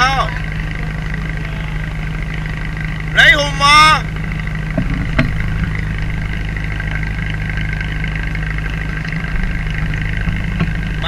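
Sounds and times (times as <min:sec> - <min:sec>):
boat engine humming: 0:00.0 - 0:11.0.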